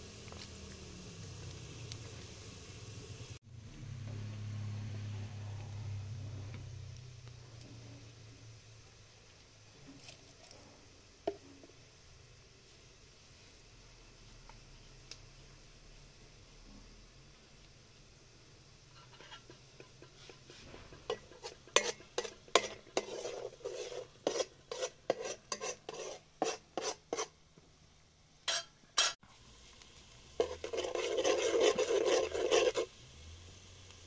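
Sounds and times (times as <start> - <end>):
continuous scraping stir: 18.9 - 27.4, 30.4 - 33.0
utensil clinking against pot: 28.5 - 29.2.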